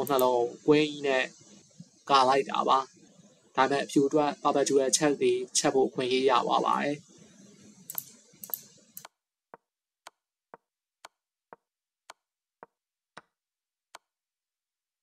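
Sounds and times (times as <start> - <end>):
low hiss: 0.0 - 9.1.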